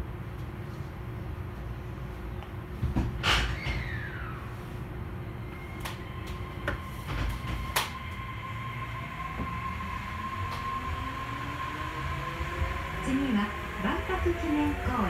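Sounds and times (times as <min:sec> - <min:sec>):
train rumbling: 0:00.0 - 0:15.0
high whine: 0:03.8 - 0:15.0.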